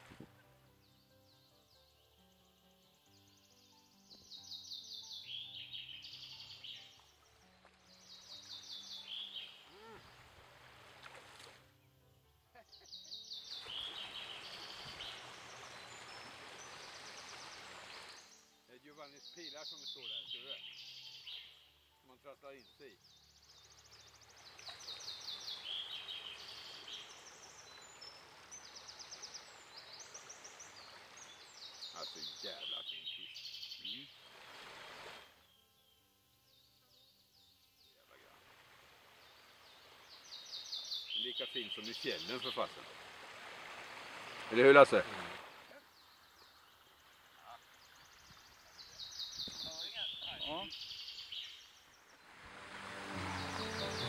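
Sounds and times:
faint background music: 0:00.0 - 0:34.6, 0:35.2 - 0:43.0, 0:51.8 - 0:54.0
songbird singing: 0:00.0 - 0:43.0, 0:43.6 - 0:54.0
flowing creek water: 0:04.7 - 0:12.3, 0:12.9 - 0:18.7, 0:23.1 - 0:35.4, 0:38.2 - 0:54.0.

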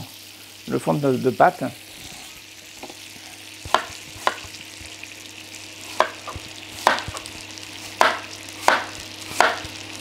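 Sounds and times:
caramel sizzling in a frying pan: 0:00.0 - 0:10.0
knife knocking on cutting board: 0:03.6 - 0:04.5, 0:06.0 - 0:07.3, 0:08.0 - 0:09.7.

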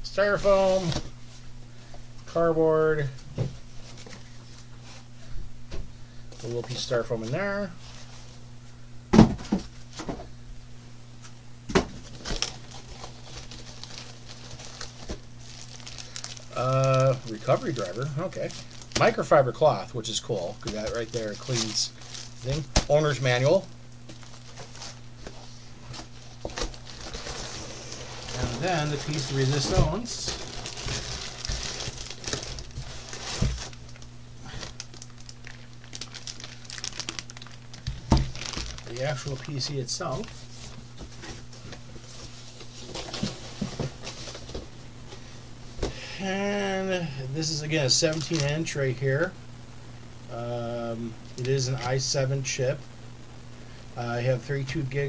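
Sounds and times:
steady low hum: 0:00.0 - 0:55.0
plastic bag crinkling: 0:12.0 - 0:44.6, 0:47.7 - 0:49.1.

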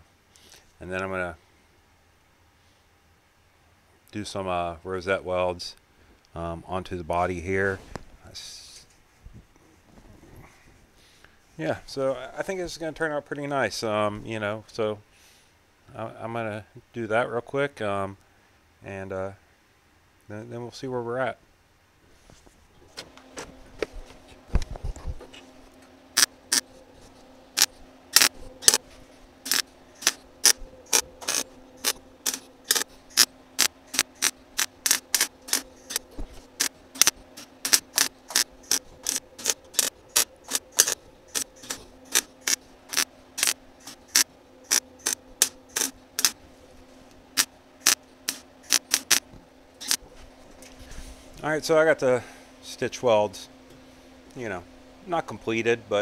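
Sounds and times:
steady low hum: 0:00.0 - 0:56.0
welding arc bursts: 0:27.6 - 0:28.8, 0:29.5 - 0:36.0, 0:36.6 - 0:46.4, 0:47.4 - 0:49.2.

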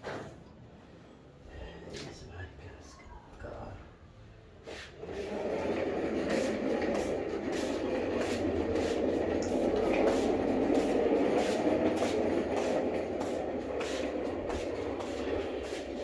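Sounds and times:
plastic toy wheels rumbling on tiles: 0:05.0 - 0:16.0.

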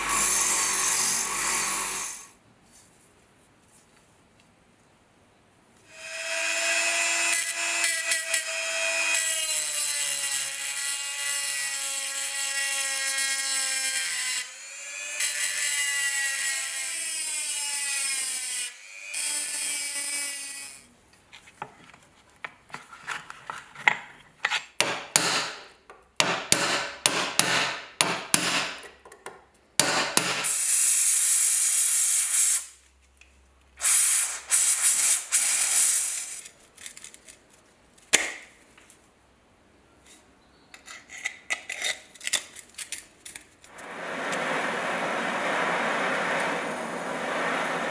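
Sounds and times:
rotary tool grinding metal: 0:00.0 - 0:02.3, 0:06.0 - 0:20.8.

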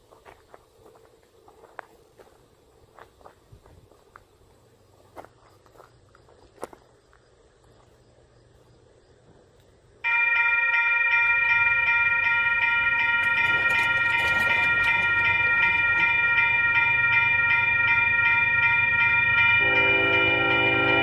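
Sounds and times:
crossing bell ringing: 0:10.0 - 0:21.0
rattling noise: 0:11.4 - 0:19.6.

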